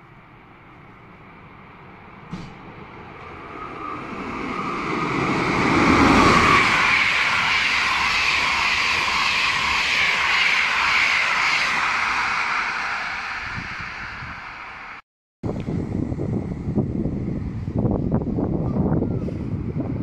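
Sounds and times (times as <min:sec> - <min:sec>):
train wheels rushing on rails: 0:00.6 - 0:15.0.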